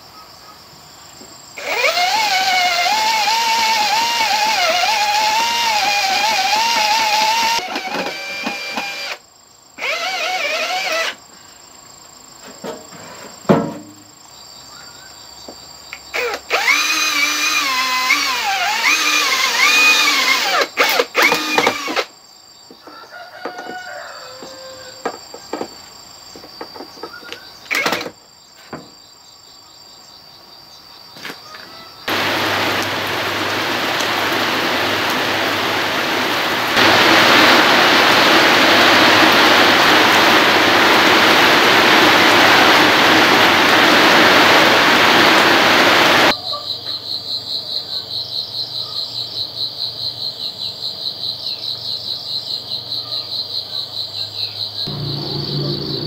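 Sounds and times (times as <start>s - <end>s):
sharp knocks: 13.5s - 14.0s
heavy rain on wet ground: 32.1s - 46.3s, 54.9s - 56.0s.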